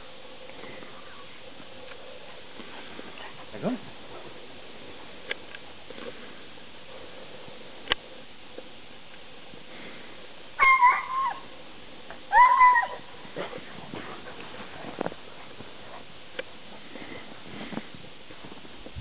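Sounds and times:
dog yelping whines: 10.6 - 11.4, 12.3 - 13.0.

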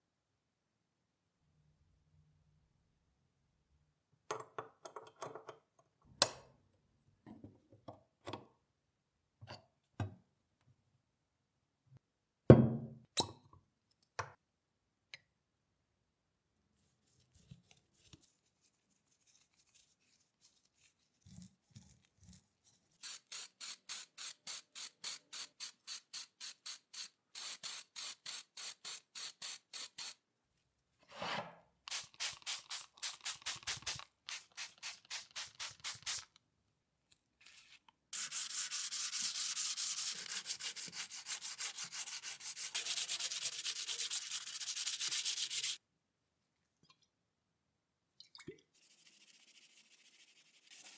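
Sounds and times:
sanding sponge rubbing on metal: 38.2 - 45.8.

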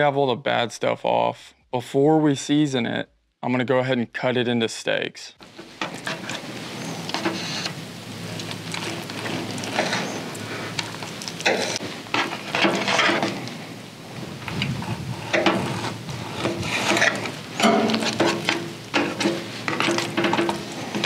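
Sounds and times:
blade scraping a tray: 11.4 - 13.5, 14.8 - 21.0.

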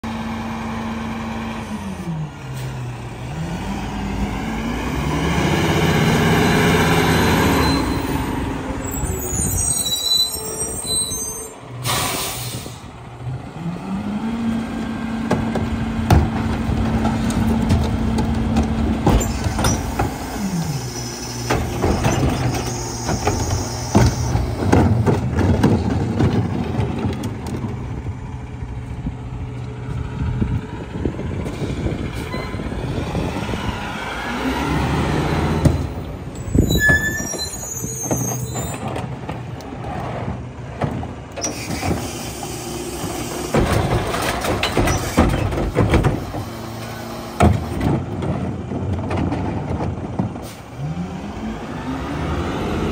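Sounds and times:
air brakes hissing and squealing: 7.0 - 13.0, 19.2 - 24.5, 31.5 - 33.3, 35.6 - 38.9, 41.4 - 43.5, 44.8 - 45.6, 50.4 - 50.8
diesel engine running: 11.6 - 36.8
carts knocking against hopper: 15.2 - 20.3, 21.4 - 27.8, 43.0 - 46.6.

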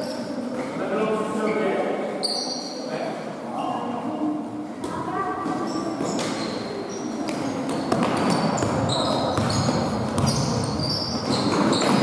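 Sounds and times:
sneaker squeaks on court: 2.2 - 2.8, 5.5 - 12.0
ball bouncing: 7.2 - 12.0.

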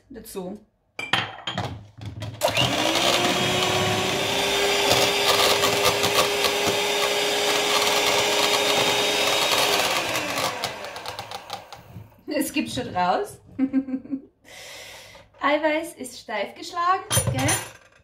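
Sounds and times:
electric hand mixer whining: 2.4 - 12.2.

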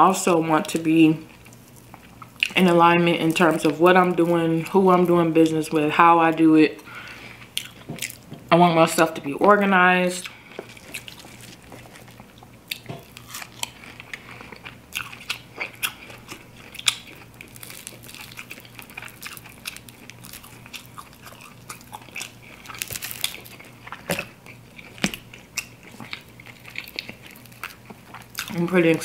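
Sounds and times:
chewing: 1.3 - 2.6, 7.3 - 8.2, 10.2 - 29.0
crunching fried chicken: 10.2 - 29.0.

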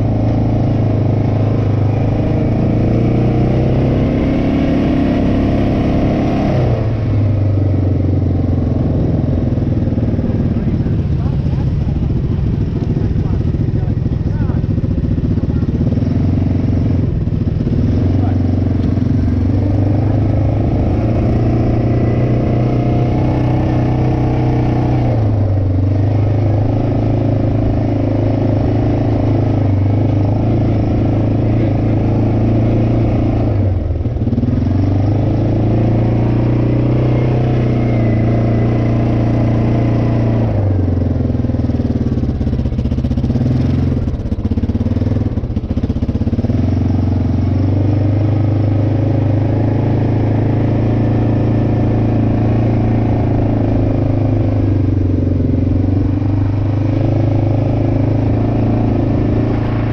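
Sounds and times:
quad engine revving: 0.0 - 59.9.

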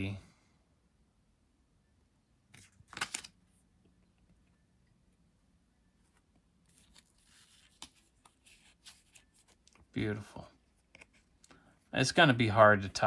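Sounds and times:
card rustling: 2.5 - 3.6, 6.0 - 12.1
thin plastic crinkling: 6.6 - 10.0.

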